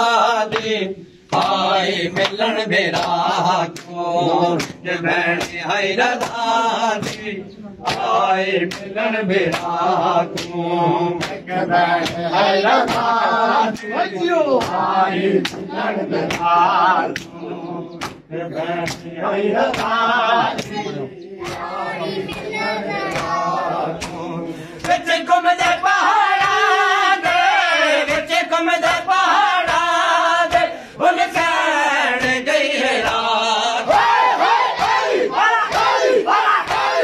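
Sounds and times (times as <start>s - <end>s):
men chanting in unison: 0.0s - 37.0s
chest-beating slaps: 2.2s - 3.2s, 4.6s - 5.6s, 6.2s - 11.4s, 12.8s - 13.9s, 14.6s - 16.6s, 17.2s - 17.4s, 18.0s - 19.1s, 19.7s - 20.0s, 20.6s - 21.7s, 23.1s - 23.4s, 24.0s - 25.0s, 33.9s - 37.0s.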